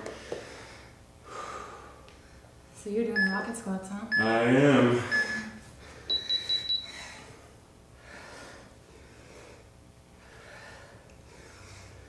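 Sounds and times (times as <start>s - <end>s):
faint breathing: 0.0s - 2.6s, 5.0s - 12.0s
interval timer beeps: 3.1s - 3.5s, 4.1s - 4.4s, 5.0s - 7.0s.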